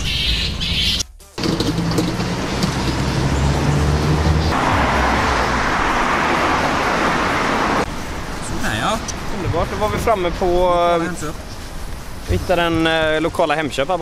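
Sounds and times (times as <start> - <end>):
tyre noise of passing cars: 0.0 - 14.0
car engine hum: 1.4 - 12.3.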